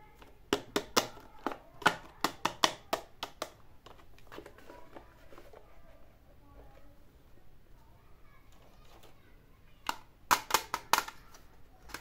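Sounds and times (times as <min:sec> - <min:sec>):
plastic toy handling: 0:00.1 - 0:06.9, 0:08.4 - 0:12.0
sharp plastic clicks: 0:09.8 - 0:12.0.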